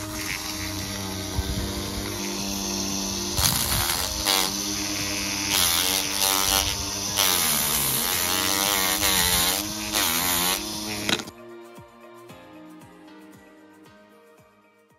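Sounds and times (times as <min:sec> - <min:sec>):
electric motor whine: 0:00.0 - 0:11.3
rasping sanding hiss: 0:00.0 - 0:11.3.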